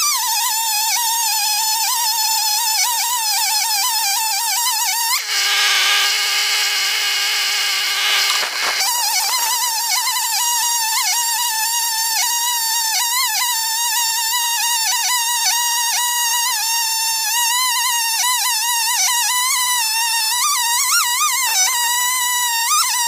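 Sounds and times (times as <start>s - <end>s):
chainsaw cutting through log: 1.4s - 12.9s.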